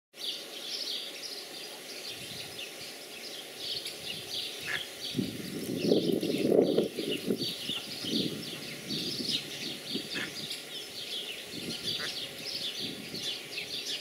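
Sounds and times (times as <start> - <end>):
ducklings peeping: 3.2 - 14.0.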